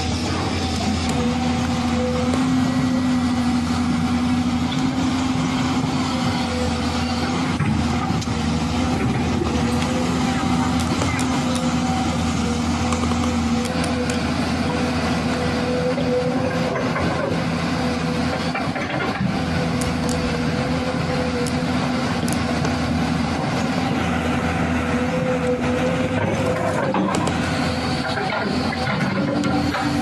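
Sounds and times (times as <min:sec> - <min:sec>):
engine droning: 0:00.0 - 0:30.0.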